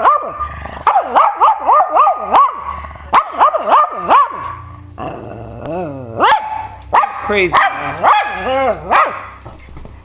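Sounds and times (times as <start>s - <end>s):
dog barking with swooping pitch: 0.0s - 2.6s, 3.2s - 4.5s, 6.2s - 9.4s
dog grumbling: 5.0s - 6.3s, 8.0s - 9.0s.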